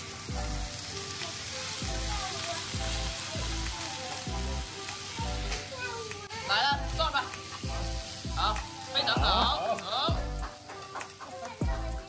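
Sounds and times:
food sizzling on hot plate: 0.0s - 12.0s
music with bass beat: 0.3s - 0.8s, 1.8s - 5.7s, 6.7s - 12.0s.

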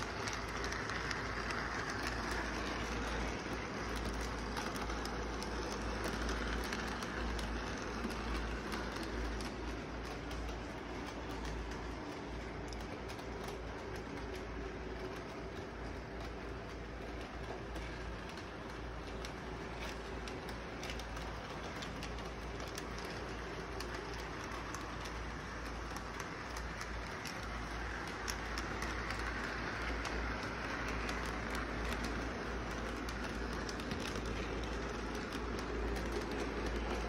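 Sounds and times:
model train rolling hum: 0.0s - 37.0s
wheels clicking on rail joints: 0.0s - 37.0s.

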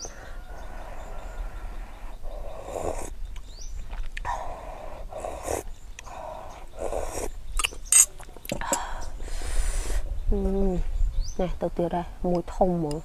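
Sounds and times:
person slurping soup: 2.4s - 3.1s, 4.2s - 5.7s, 6.7s - 8.2s.

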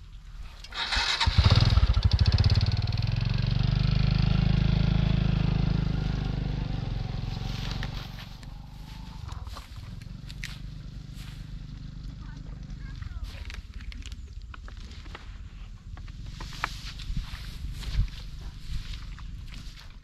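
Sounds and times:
small engine running: 0.7s - 13.3s.

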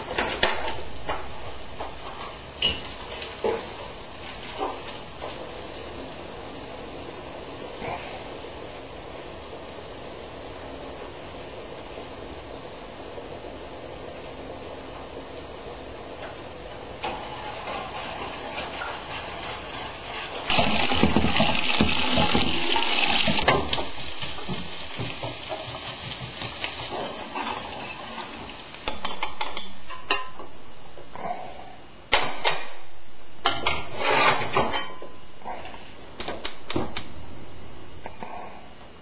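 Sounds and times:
vegetables sizzling in a skillet: 20.1s - 28.9s
spatula scraping a pan: 33.6s - 34.9s.

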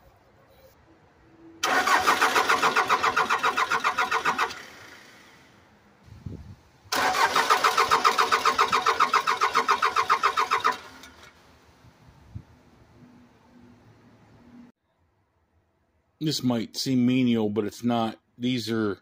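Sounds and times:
diesel engine starter cranking: 1.6s - 5.5s, 6.9s - 11.5s.

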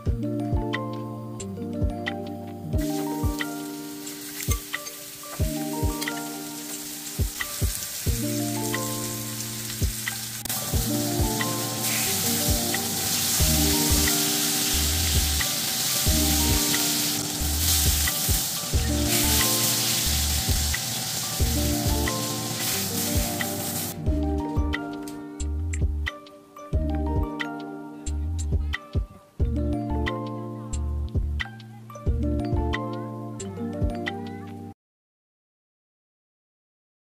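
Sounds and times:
background music with steady beat: 0.0s - 34.7s
meat sizzling in a frying pan: 2.8s - 24.0s.

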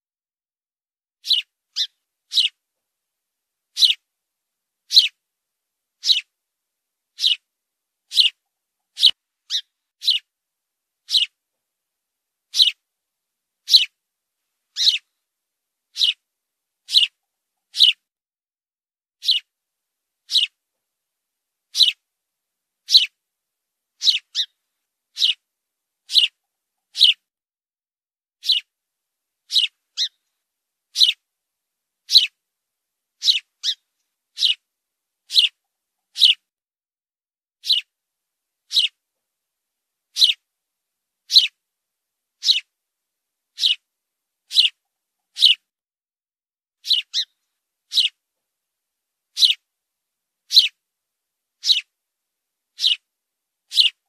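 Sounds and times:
sparrow chirping: 1.2s - 2.6s, 3.7s - 4.0s, 4.9s - 5.2s, 6.0s - 6.3s, 7.1s - 7.5s, 8.1s - 10.3s, 11.0s - 11.4s, 12.5s - 12.8s, 13.6s - 14.0s, 14.7s - 15.1s, 15.9s - 16.2s, 16.8s - 18.0s, 19.2s - 19.5s, 20.2s - 20.6s, 21.7s - 22.0s, 22.8s - 23.2s, 24.0s - 25.4s, 26.0s - 27.2s, 28.4s - 28.7s, 29.5s - 30.3s, 30.9s - 31.2s, 32.0s - 32.4s, 33.2s - 34.7s, 35.3s - 36.4s, 37.6s - 37.9s, 38.6s - 39.0s, 40.1s - 40.4s, 41.3s - 41.6s, 42.4s - 42.7s, 43.5s - 43.9s, 44.5s - 45.7s, 46.8s - 48.2s, 49.3s - 49.6s, 50.5s - 50.8s, 51.6s - 51.9s, 52.7s - 53.1s, 53.7s - 54.0s.

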